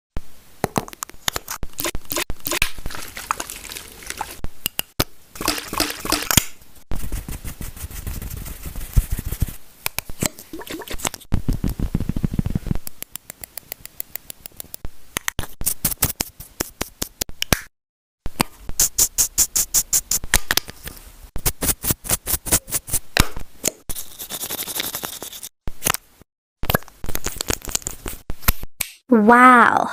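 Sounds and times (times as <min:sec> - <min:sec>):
quick clicks: 0:04.6 - 0:06.6.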